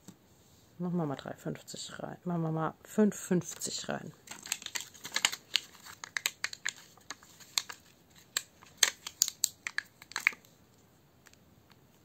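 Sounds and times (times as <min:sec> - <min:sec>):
plastic pockets crinkling: 0:03.6 - 0:10.5.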